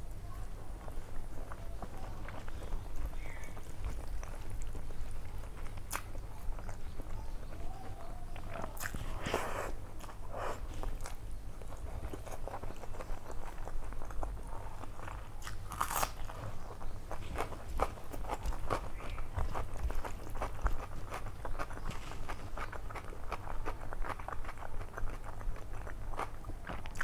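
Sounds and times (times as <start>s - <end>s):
person chewing food: 0.0s - 27.0s.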